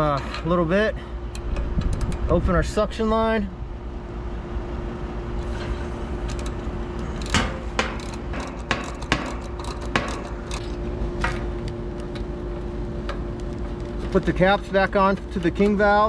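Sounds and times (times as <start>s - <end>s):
faint steady hum: 0.0s - 16.0s
ratchet wrench metallic clicks: 6.2s - 10.6s.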